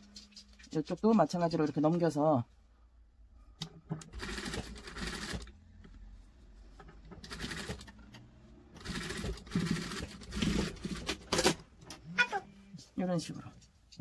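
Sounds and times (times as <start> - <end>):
sewing machine running in bursts: 4.2 - 5.5, 8.8 - 11.5.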